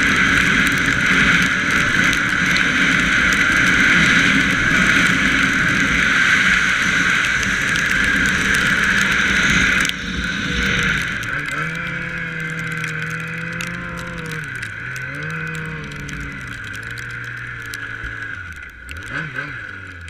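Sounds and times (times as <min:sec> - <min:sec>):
snowmobile engine: 0:00.0 - 0:20.0
wind and track noise: 0:00.0 - 0:20.0.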